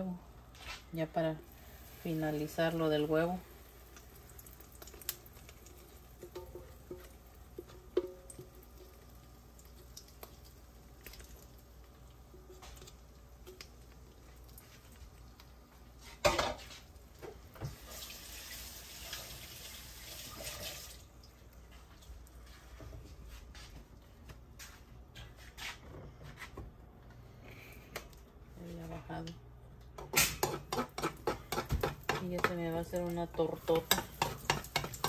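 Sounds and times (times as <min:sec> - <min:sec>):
oil frying in a pan: 0:01.3 - 0:22.9, 0:30.0 - 0:35.0
egg splashing into hot oil: 0:03.5 - 0:15.5.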